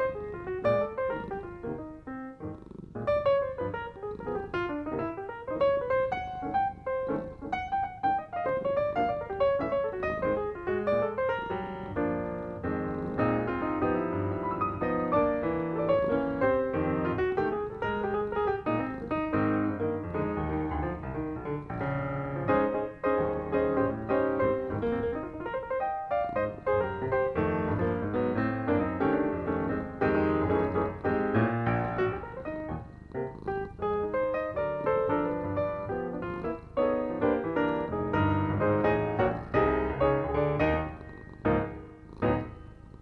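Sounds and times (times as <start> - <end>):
soft piano melody: 0.0 - 43.0.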